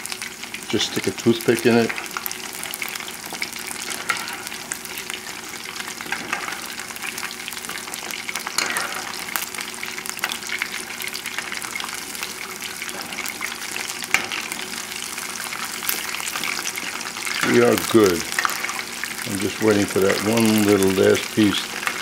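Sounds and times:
chicken deep-frying in oil: 0:00.0 - 0:22.0.

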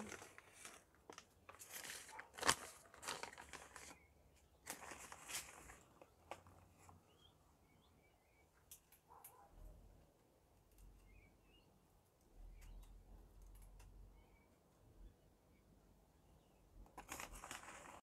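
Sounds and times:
paper bag crinkling: 0:00.0 - 0:06.9, 0:17.0 - 0:18.0.

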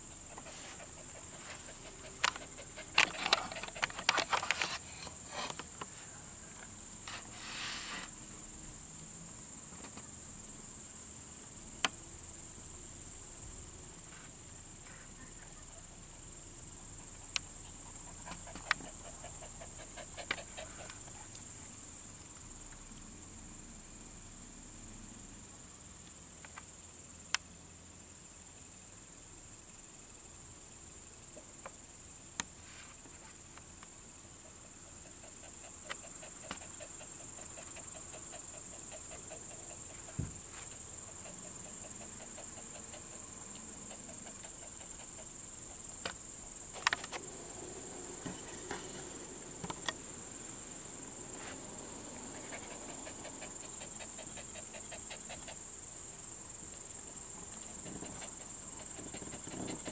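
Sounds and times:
crickets chirping: 0:00.0 - 0:59.9.

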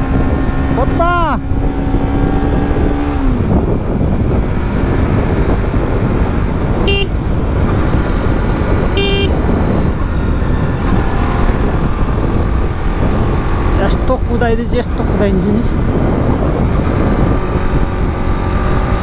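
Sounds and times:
vehicle rumbling on road: 0:00.0 - 0:19.0
vehicle horn beeps: 0:06.8 - 0:07.2, 0:09.0 - 0:09.4.

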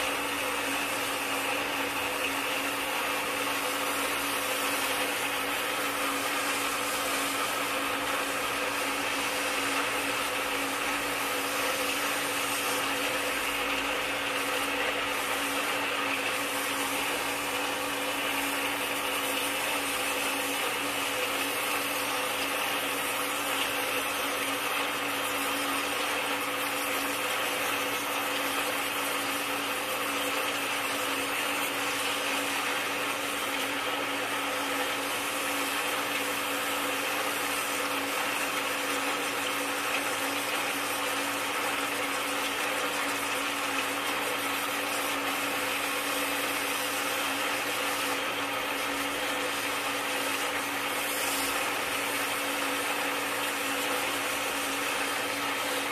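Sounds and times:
water jet hissing: 0:00.0 - 0:55.9.

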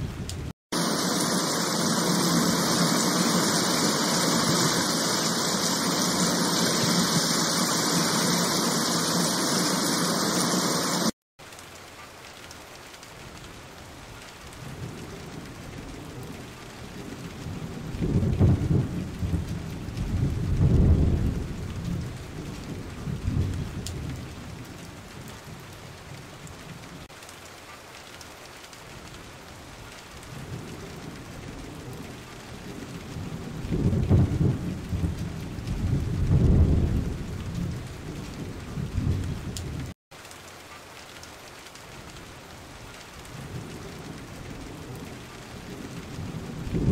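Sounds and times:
thunder rolling: 0:00.0 - 0:11.1, 0:14.7 - 0:25.6, 0:30.4 - 0:40.0, 0:43.3 - 0:46.9
heavy rain: 0:00.0 - 0:46.9.

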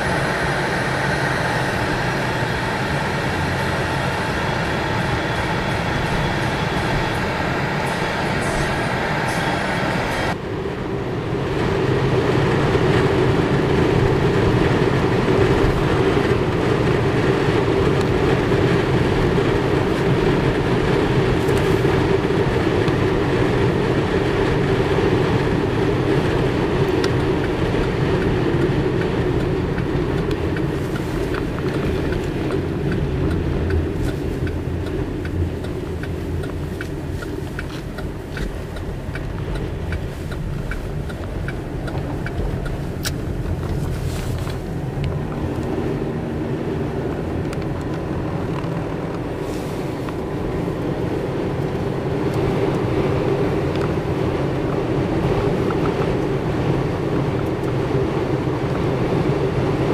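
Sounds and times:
road and tyre noise: 0:00.0 - 0:59.9
light ticks: 0:26.8 - 0:45.7.

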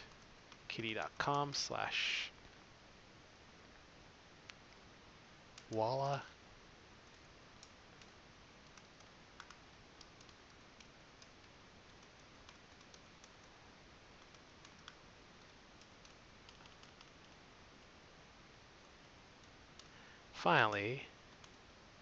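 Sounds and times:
low steady hiss: 0:00.0 - 0:22.0
keyboard typing: 0:07.1 - 0:13.6, 0:14.2 - 0:17.4.

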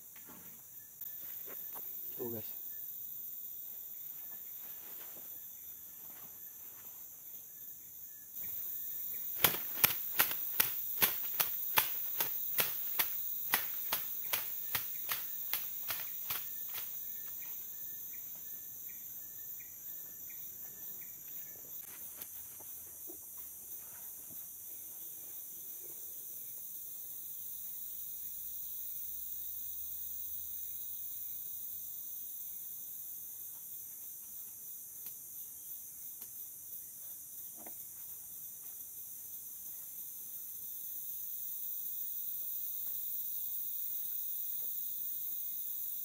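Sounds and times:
forest insects droning: 0:00.0 - 0:46.0
sharp clicks: 0:09.3 - 0:16.8.

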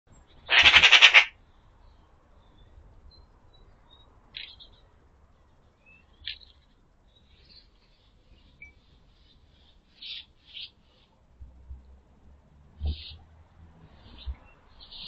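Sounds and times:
small birds chirping faintly: 0:00.1 - 0:15.0
magpie chattering rattle: 0:00.5 - 0:01.3.

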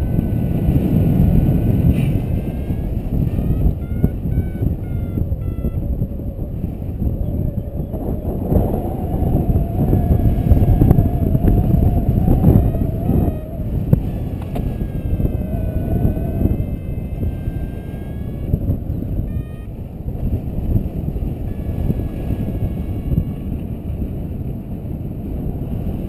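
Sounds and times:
wind rumble on microphone: 0:00.0 - 0:26.0.

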